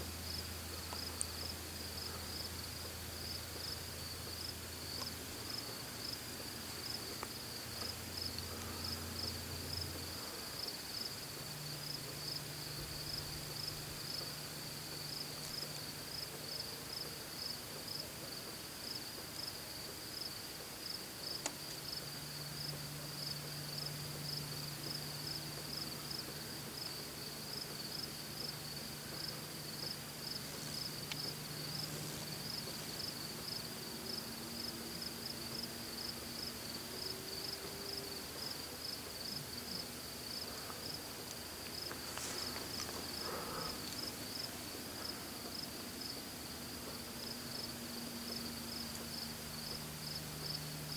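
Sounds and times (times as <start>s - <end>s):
crickets chirping: 0.0s - 50.9s
faint low hum: 0.0s - 50.9s.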